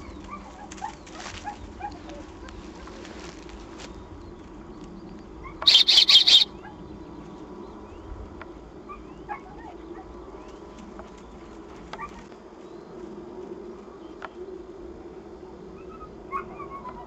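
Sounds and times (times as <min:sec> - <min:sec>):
faint bird chirps: 0:05.6 - 0:06.5
high-pitched whistle pips: 0:05.7 - 0:06.5.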